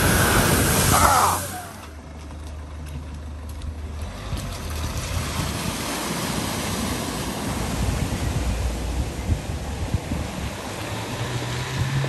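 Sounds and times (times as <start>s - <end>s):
van driving through floodwater: 0.0s - 12.0s
tyres splashing water: 4.0s - 12.0s.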